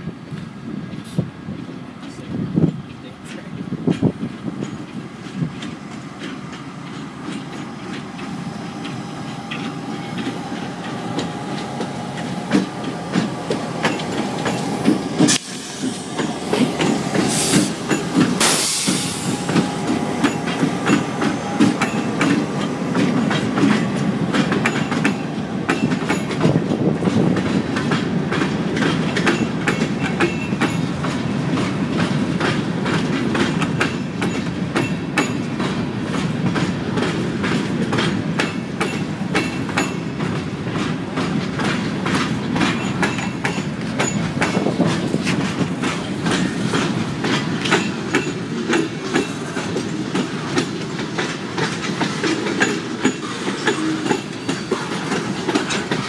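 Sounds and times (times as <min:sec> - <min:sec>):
diesel locomotives passing: 0:00.0 - 0:56.0
train wheels clicking over rail joints: 0:00.2 - 0:56.0
brief hiss: 0:15.2 - 0:16.2.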